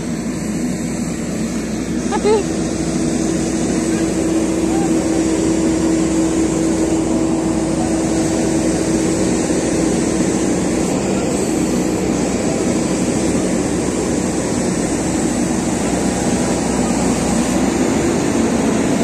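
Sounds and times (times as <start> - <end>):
excavator diesel engine under load: 0.0 - 19.0.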